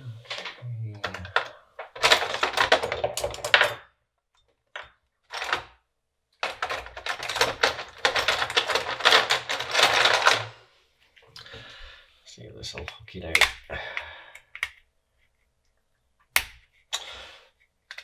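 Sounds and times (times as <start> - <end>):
plastic casing clicking and rattling: 0.3 - 3.8, 6.4 - 10.4.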